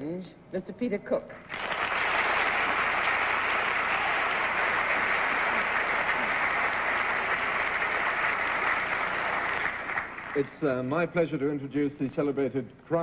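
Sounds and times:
audience applauding: 0:01.5 - 0:10.7.

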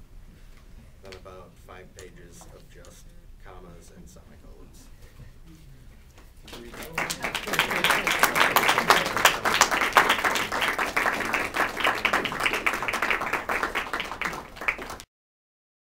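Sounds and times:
audience applauding: 0:06.4 - 0:15.1.

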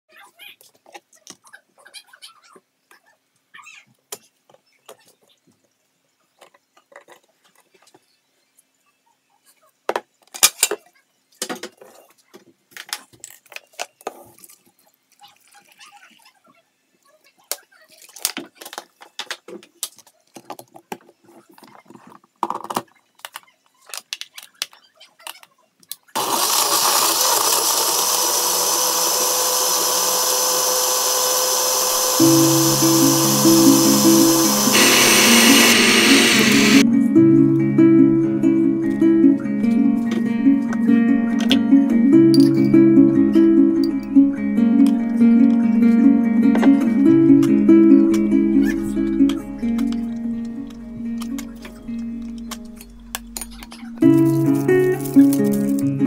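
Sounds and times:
blender running: 0:26.2 - 0:36.8.

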